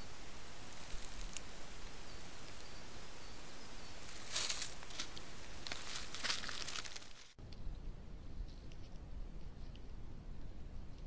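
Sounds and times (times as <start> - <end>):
footsteps rustling dry leaves: 0.0 - 7.4.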